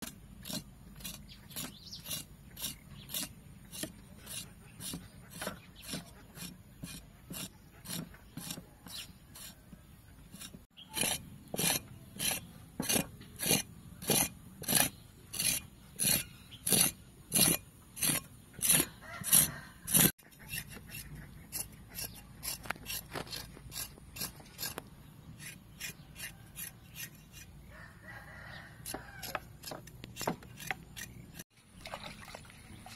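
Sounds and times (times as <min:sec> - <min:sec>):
cleaver scraping skin on board: 0:10.3 - 0:27.5.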